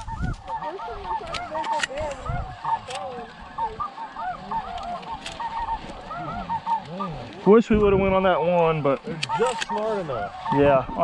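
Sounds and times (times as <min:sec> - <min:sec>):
geese honking chorus: 0:00.0 - 0:11.0
sharp clicks: 0:08.9 - 0:09.9.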